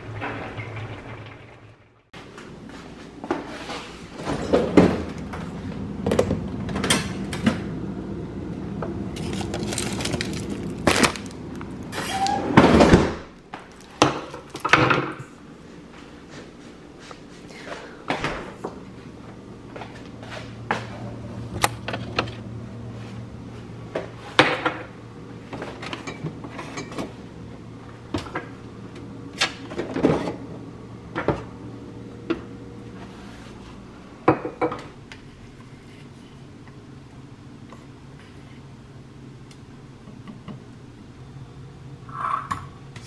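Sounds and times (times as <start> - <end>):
low steady hum: 0.0 - 43.0
freezer drawer pulled out: 9.2 - 13.3
refrigerator door opening: 11.9 - 13.3
kitchen items knocking and clattering: 12.5 - 15.3.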